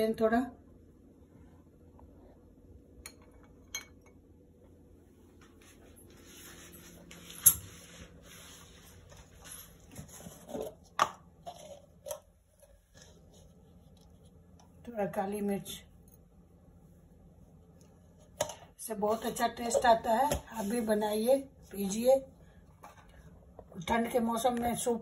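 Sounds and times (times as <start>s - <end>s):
soft swishing of stirring: 5.3s - 14.9s, 15.7s - 18.4s.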